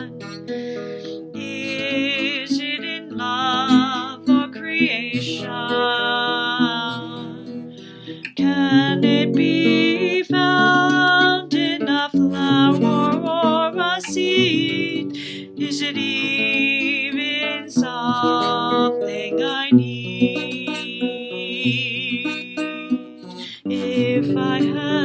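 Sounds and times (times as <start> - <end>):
acoustic guitar chords: 0.0 - 25.0
woman singing: 0.0 - 25.0
singer breathing: 0.4 - 1.4, 7.6 - 8.4, 15.0 - 15.6, 23.1 - 23.7.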